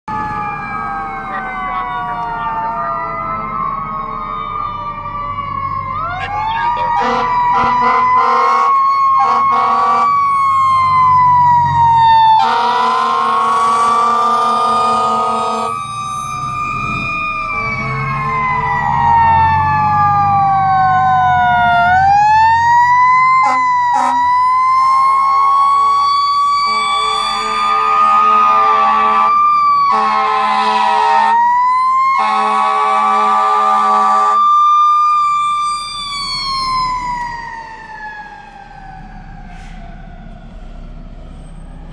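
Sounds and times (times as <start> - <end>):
diesel engine rumble: 0.1 - 41.9
mechanical siren wailing: 0.1 - 41.9
air horn blasts: 6.9 - 10.2, 12.4 - 15.8, 23.4 - 24.3, 26.7 - 29.3, 29.9 - 31.4, 32.2 - 34.4.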